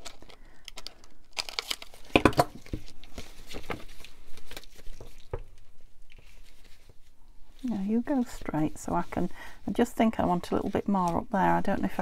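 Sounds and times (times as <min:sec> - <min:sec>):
paper rustling: 0:00.0 - 0:09.3.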